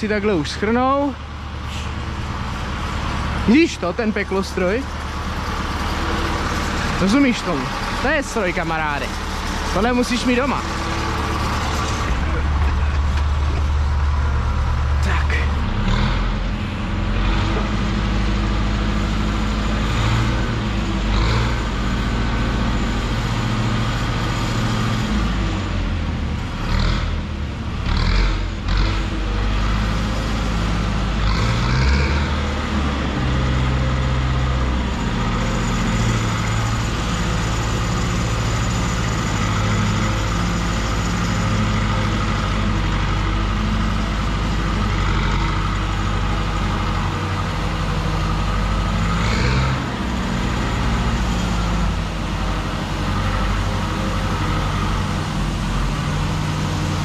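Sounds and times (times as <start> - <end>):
trailer clunks: 0.0 - 18.3
tractor diesel engine running: 0.0 - 57.0.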